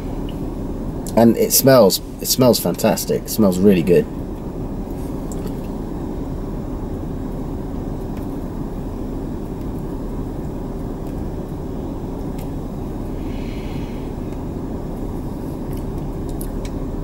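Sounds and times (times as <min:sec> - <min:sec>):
truck engine humming: 0:00.0 - 0:17.0.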